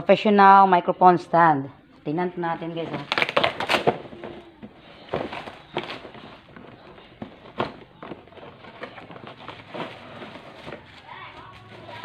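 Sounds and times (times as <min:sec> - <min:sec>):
cardboard rustling: 0:02.8 - 0:12.0.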